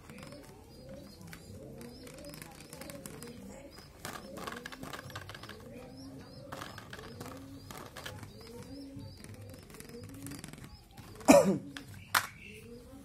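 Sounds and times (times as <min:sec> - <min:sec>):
low cooing bird call: 0:00.0 - 0:13.0
plastic toy car clicks and knocks: 0:11.8 - 0:12.4.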